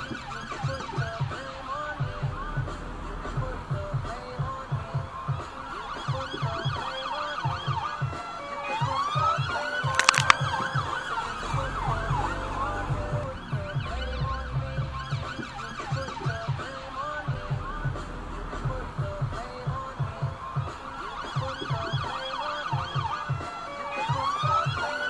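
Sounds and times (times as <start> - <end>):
sharp clicks: 9.9 - 10.4
police sirens wailing and yelping: 20.2 - 25.0.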